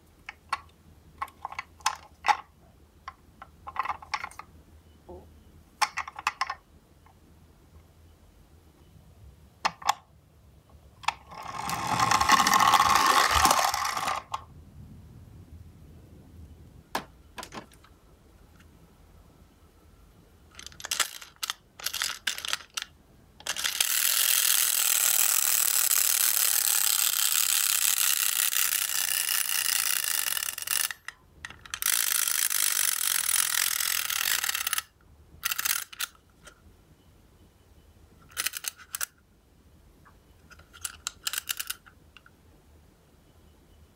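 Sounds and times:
clockwork motor whirring rattle: 11.0s - 14.4s, 20.6s - 36.1s
pull-back toy motor whirr: 11.0s - 14.4s, 20.6s - 36.2s
wind-up key clicks: 11.0s - 14.4s, 20.5s - 36.2s, 38.3s - 39.1s, 40.5s - 42.3s.

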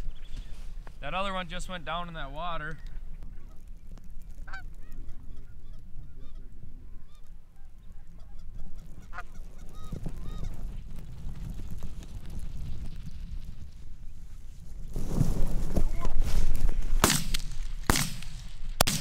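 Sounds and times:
geese honking: 4.3s - 10.7s.

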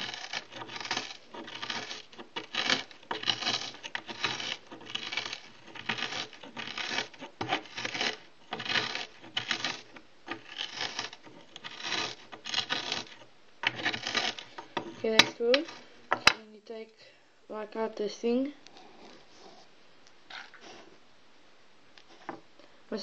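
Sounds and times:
tablets being crushed and ground: 0.0s - 16.4s.

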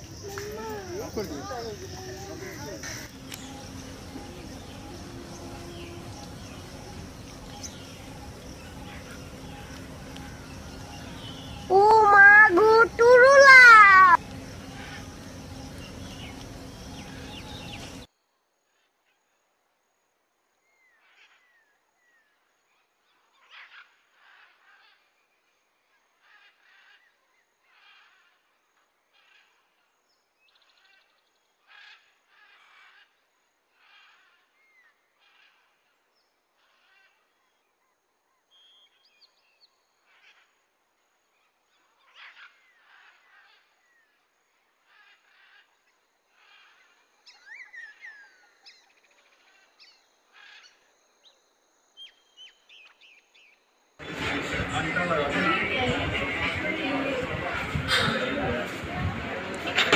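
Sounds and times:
faint bird calls: 0.0s - 18.1s, 41.4s - 51.4s.

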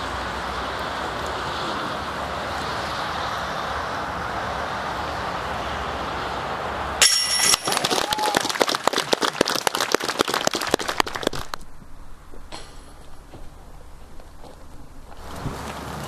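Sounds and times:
steady outdoor hiss: 0.0s - 16.0s
disc golf chains jangling: 7.0s - 8.4s
crowd clapping: 7.7s - 11.6s.

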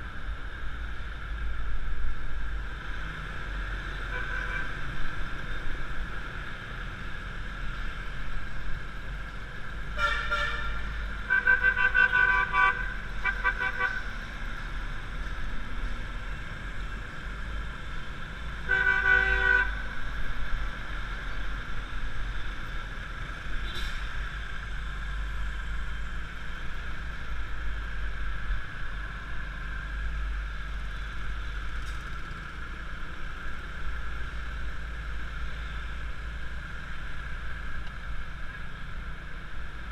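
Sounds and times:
vehicle horns honking: 10.0s - 14.0s, 18.6s - 19.7s.

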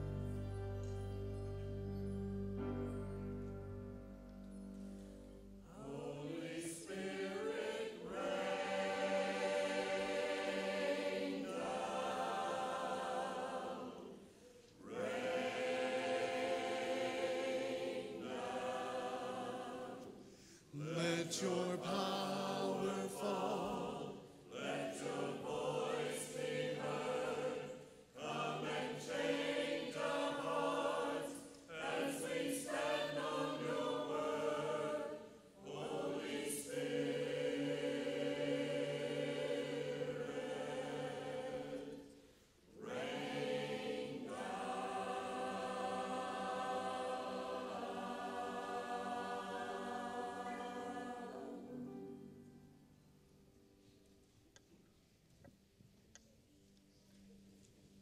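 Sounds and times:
church choir singing: 0.0s - 53.0s.

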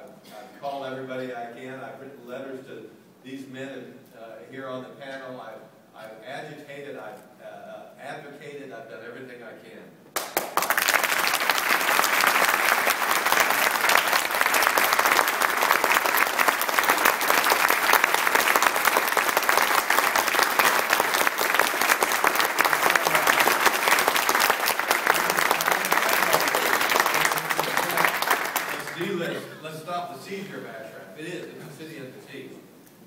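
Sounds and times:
person clapping close by: 10.2s - 29.0s
audience applauding: 10.2s - 29.3s.

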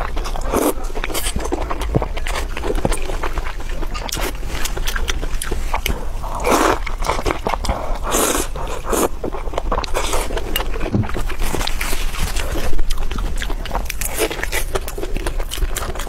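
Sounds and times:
slurping food: 6.3s - 9.2s.

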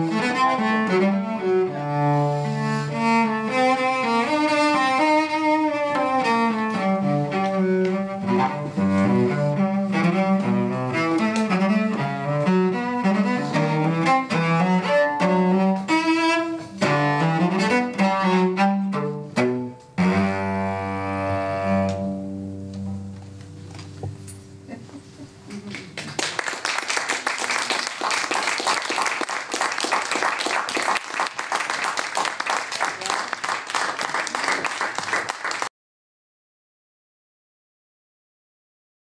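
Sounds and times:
solo cello bowed: 0.0s - 25.6s.

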